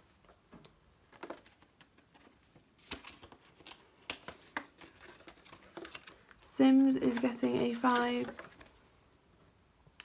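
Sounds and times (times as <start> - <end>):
banknotes rustling in plastic pocket: 2.2 - 8.8.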